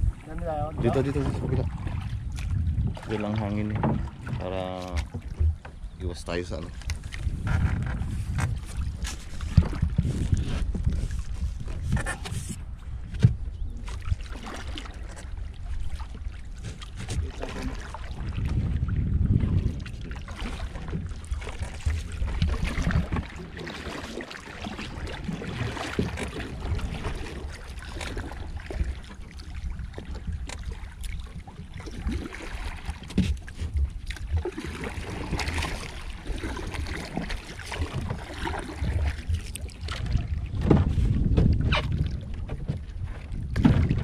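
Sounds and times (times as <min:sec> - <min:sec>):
wind buffeting microphone: 0:00.0 - 0:14.3, 0:15.1 - 0:23.6, 0:24.6 - 0:44.0
water splashing against boat: 0:00.0 - 0:44.0.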